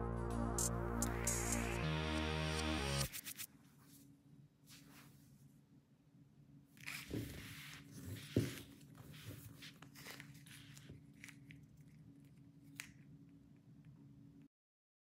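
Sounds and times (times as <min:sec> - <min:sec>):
tape measure rustling and scraping: 0:03.0 - 0:04.0, 0:06.8 - 0:11.5.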